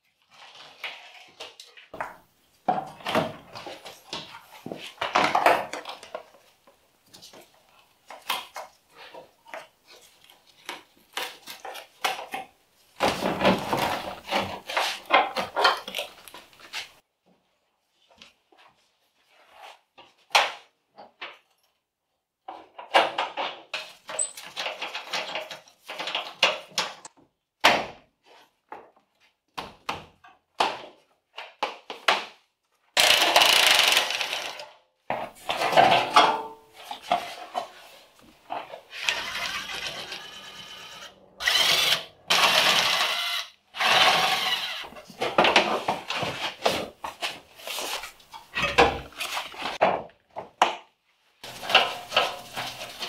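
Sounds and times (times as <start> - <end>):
power tool on bolts: 38.9 - 44.9.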